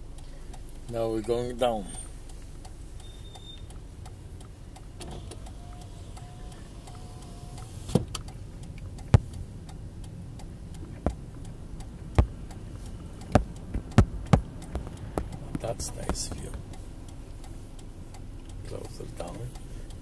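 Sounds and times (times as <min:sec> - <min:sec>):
car road and engine rumble: 0:00.0 - 0:20.0
sharp knocks: 0:09.1 - 0:09.4, 0:12.1 - 0:12.6, 0:13.3 - 0:16.6.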